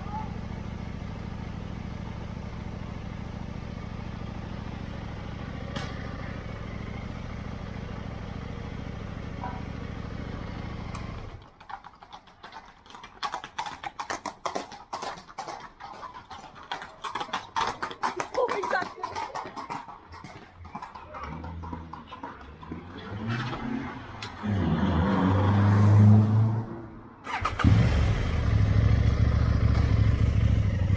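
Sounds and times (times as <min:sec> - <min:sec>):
engine idling: 0:00.0 - 0:11.5, 0:27.3 - 0:30.9.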